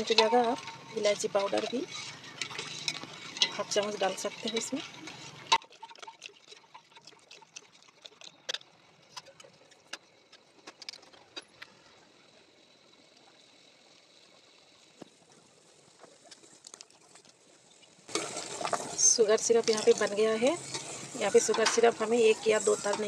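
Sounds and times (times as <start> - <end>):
syrup simmering in a steel pot: 0.0 - 15.1.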